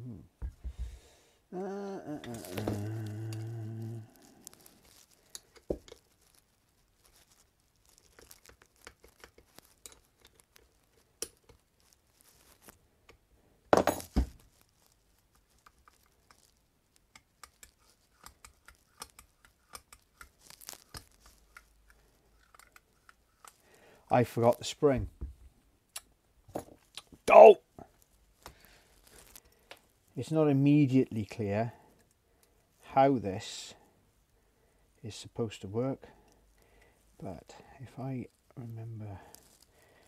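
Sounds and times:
small parts clicking and tapping: 4.3s - 6.4s, 7.0s - 13.2s, 15.4s - 23.7s.

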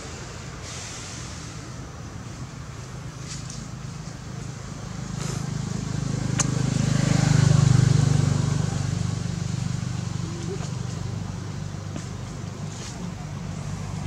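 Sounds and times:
passing vehicle engine hum: 1.6s - 14.0s.

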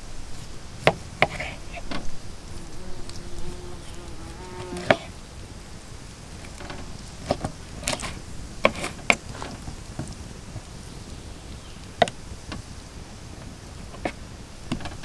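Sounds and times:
insect buzzing: 1.6s - 5.4s.

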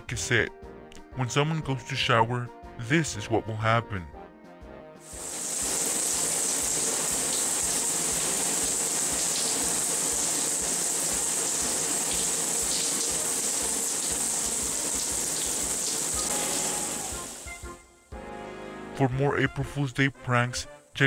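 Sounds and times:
shower water splashing: 5.0s - 17.8s.

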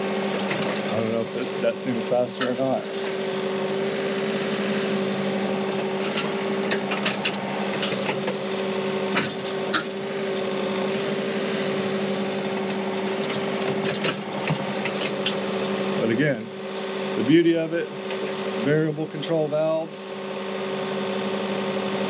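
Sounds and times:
diesel engine running: 0.0s - 22.0s.

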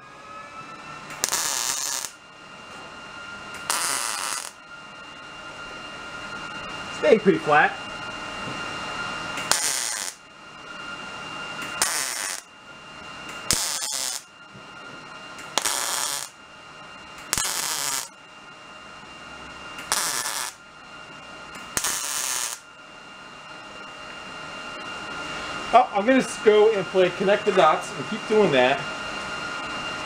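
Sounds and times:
welder hum: 0.0s - 30.0s
welding arc crackling: 1.1s - 2.2s, 3.6s - 4.6s, 9.4s - 10.2s, 11.6s - 12.5s, 13.3s - 14.3s, 15.4s - 16.4s, 17.2s - 18.1s, 19.8s - 20.6s, 21.6s - 22.6s.

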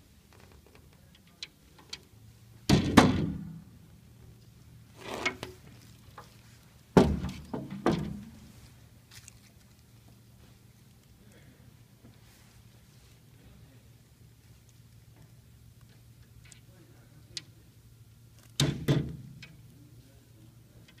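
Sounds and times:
chair parts thudding: 6.9s - 8.4s.

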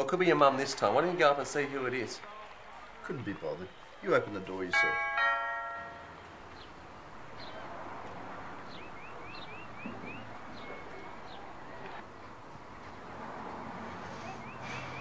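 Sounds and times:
outdoor background noise: 0.0s - 15.0s
birds chirping: 4.7s - 7.8s, 8.5s - 11.8s, 14.2s - 15.0s.

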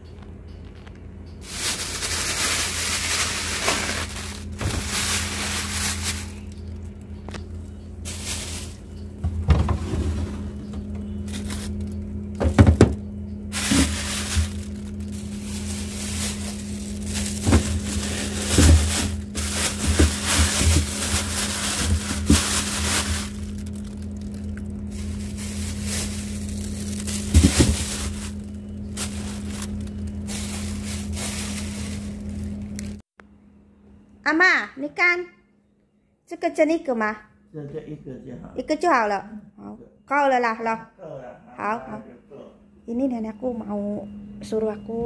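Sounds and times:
low hum: 0.0s - 34.2s
plastic bags rustling: 1.4s - 7.4s, 8.0s - 33.0s
containers knocking on shelves: 9.2s - 10.9s, 12.4s - 13.0s.

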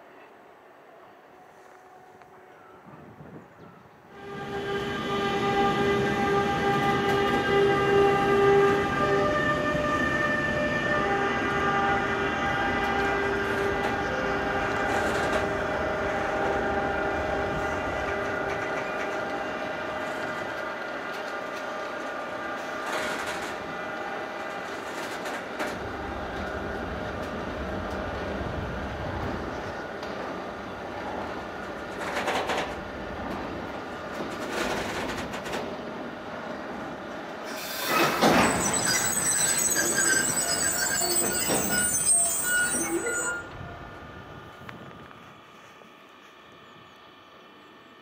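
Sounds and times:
clatter of freight wagons: 31.1s - 36.0s, 37.5s - 43.4s
train wheels squealing: 37.5s - 43.5s.

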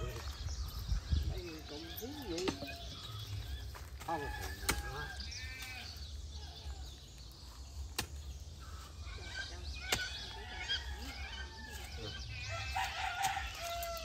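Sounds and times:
birds chirping: 0.0s - 14.0s
hoe chopping into dry soil: 7.8s - 8.4s.

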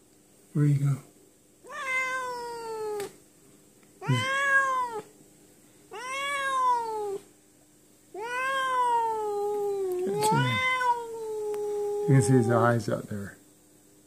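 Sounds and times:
cat meowing: 1.6s - 3.1s, 4.0s - 5.1s, 5.9s - 7.2s, 8.1s - 12.7s.

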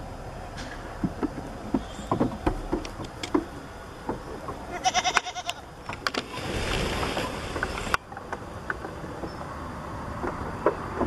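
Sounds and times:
hooves tapping on wood: 0.6s - 6.1s, 10.2s - 11.0s.

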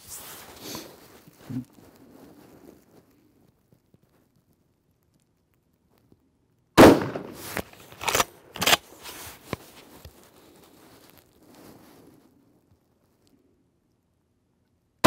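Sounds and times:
rifle shot: 6.8s - 8.8s.

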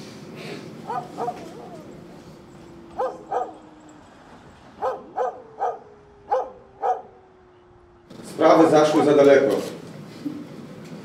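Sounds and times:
small dog yapping: 0.8s - 4.1s, 4.8s - 7.1s.

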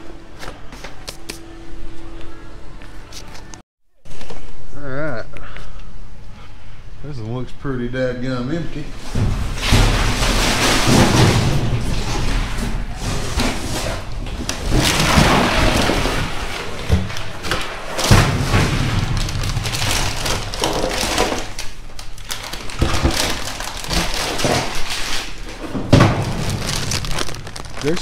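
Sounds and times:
cardboard and plastic rustling: 9.0s - 28.0s
knocks in metal dumpster: 9.1s - 17.1s, 18.0s - 21.4s, 25.8s - 26.8s.

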